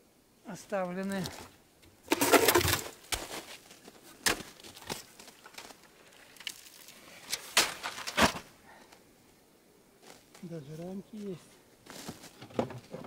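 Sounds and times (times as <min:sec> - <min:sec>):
footsteps crunching on snow crust: 0:02.2 - 0:08.4, 0:10.0 - 0:12.4.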